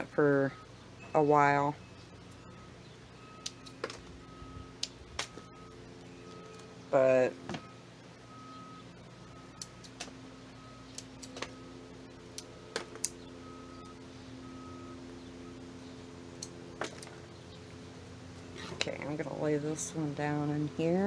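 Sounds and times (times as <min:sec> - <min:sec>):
faint steady hum: 0:00.0 - 0:21.0
roots clicking and snapping: 0:09.6 - 0:10.2, 0:10.9 - 0:11.6, 0:12.3 - 0:13.2.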